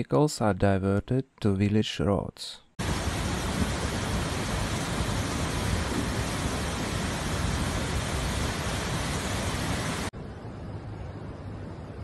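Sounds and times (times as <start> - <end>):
floodwater rushing through channel: 2.8 - 10.1.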